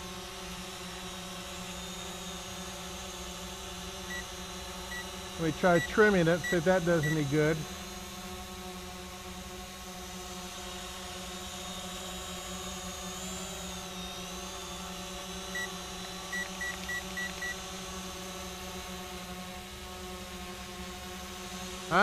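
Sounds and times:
drone propellers whining: 0.0s - 22.0s
remote controller beeps: 5.7s - 7.3s, 15.6s - 17.6s.

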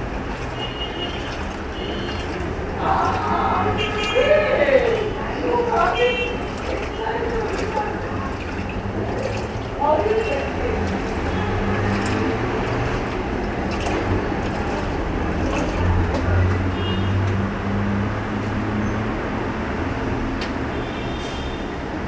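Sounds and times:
washing machine motor hum: 0.0s - 16.9s.

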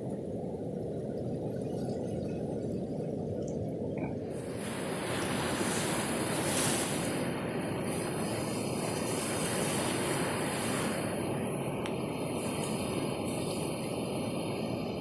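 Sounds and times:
ocean surf breaking on beach: 4.3s - 15.0s.

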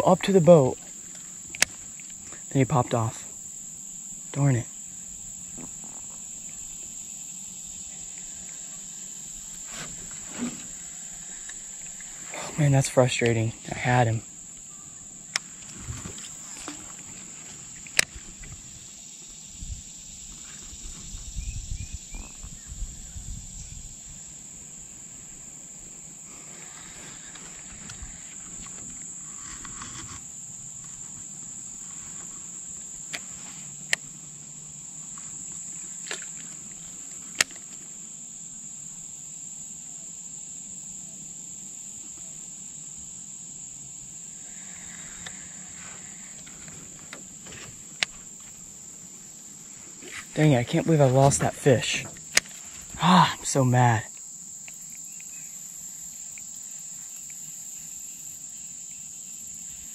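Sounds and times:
high-pitched insect chorus: 0.0s - 59.9s.

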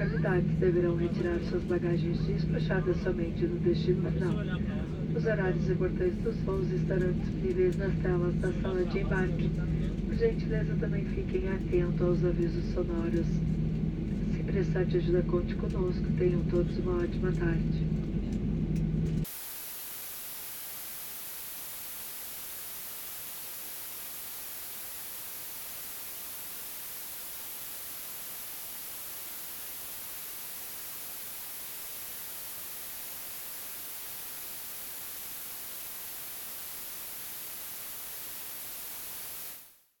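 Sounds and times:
airplane cabin rumble: 0.0s - 19.3s
television static hiss: 19.2s - 40.0s.

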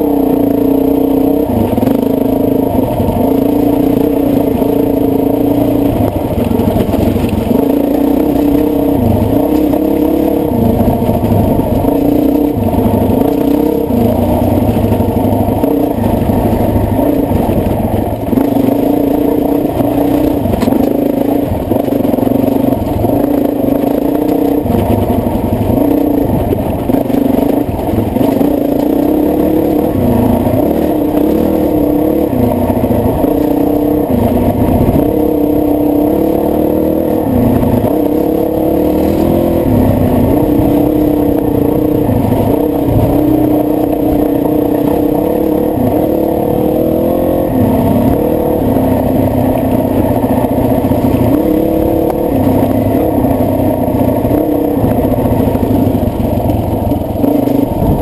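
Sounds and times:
muffled dirt bike engine revving: 0.0s - 58.0s.

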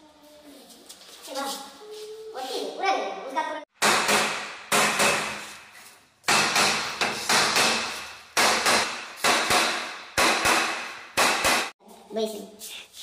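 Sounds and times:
hammer blows echoing: 3.8s - 5.7s, 6.3s - 11.8s.

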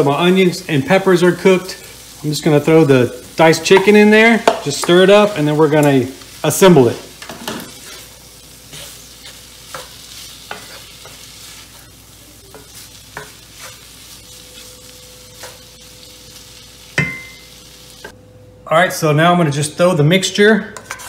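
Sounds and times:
food sizzling in a skillet: 0.0s - 18.2s
wooden spatula scraping a pan: 7.2s - 11.9s, 12.5s - 15.7s, 20.8s - 21.0s.

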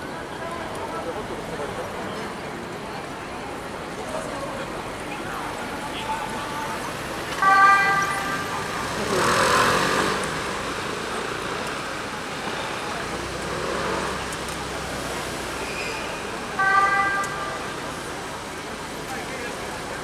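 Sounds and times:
crowd voices: 0.0s - 20.0s
street noise: 0.0s - 20.0s
ambulance warning blasts: 7.3s - 8.9s, 16.5s - 17.8s.

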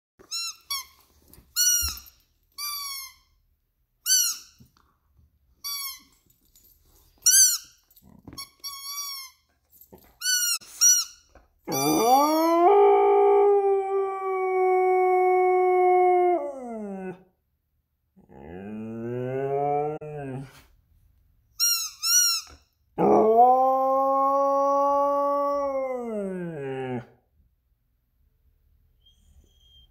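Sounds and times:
squeaky toy squeaking: 0.2s - 1.0s, 1.6s - 3.4s, 4.0s - 4.6s, 5.6s - 6.2s, 7.2s - 7.8s, 8.4s - 9.5s, 10.2s - 12.0s, 21.6s - 22.8s
dog howling: 11.7s - 17.2s, 18.3s - 20.4s, 23.0s - 27.2s.

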